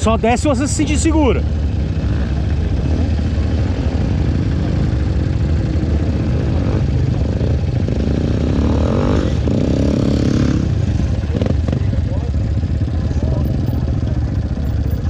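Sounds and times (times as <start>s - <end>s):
dirt bike engines idling: 0.0s - 15.0s
engine revving: 1.6s - 12.3s.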